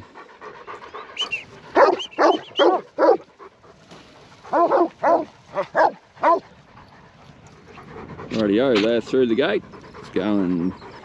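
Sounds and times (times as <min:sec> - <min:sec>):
dog barking: 0:01.8 - 0:03.2, 0:04.5 - 0:06.4.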